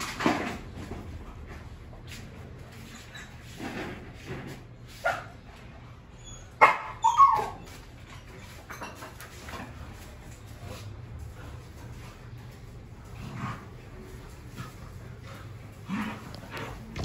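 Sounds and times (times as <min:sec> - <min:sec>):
dog barking: 0:06.6 - 0:07.0.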